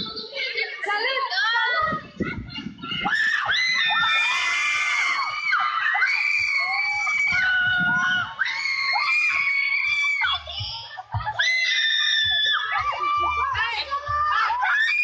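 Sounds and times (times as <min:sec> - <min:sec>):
crowd of girls screaming: 0:03.0 - 0:15.0.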